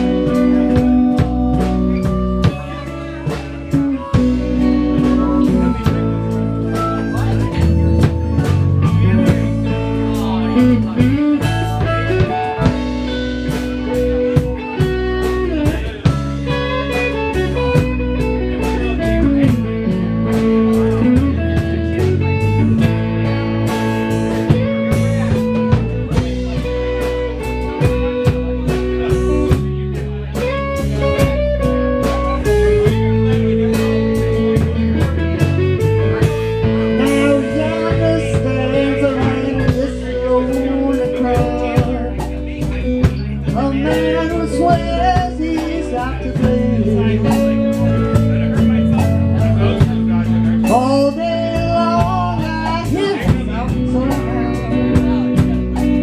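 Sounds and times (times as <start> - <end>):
drum kit: 0.0 - 56.0
electric guitar with bent notes: 0.0 - 56.0.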